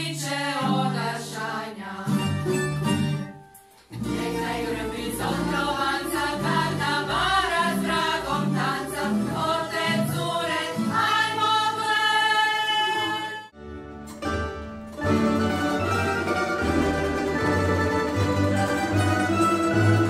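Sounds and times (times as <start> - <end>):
mixed choir singing: 0.0 - 2.5, 3.9 - 13.5
plucked string orchestra: 0.6 - 11.8, 12.7 - 20.0.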